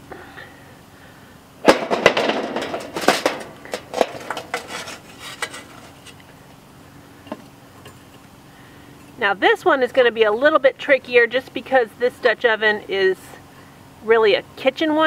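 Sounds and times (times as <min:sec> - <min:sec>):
tongs clattering in metal chimney: 0:01.7 - 0:06.2.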